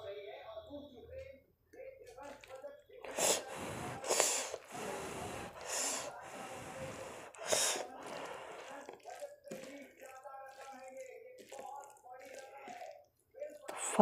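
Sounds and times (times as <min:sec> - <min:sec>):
fingers mixing food on a plate: 0:02.1 - 0:14.0
breathy rushes on microphone: 0:03.1 - 0:08.9.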